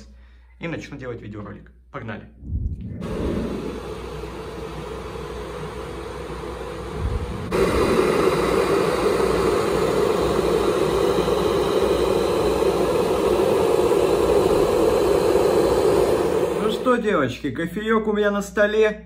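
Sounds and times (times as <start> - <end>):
electric kettle heating water: 3.0 - 17.2.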